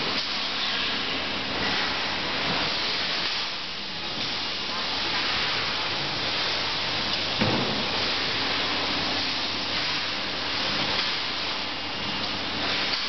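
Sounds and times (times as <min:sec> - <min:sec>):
thump: 0:07.4 - 0:07.9.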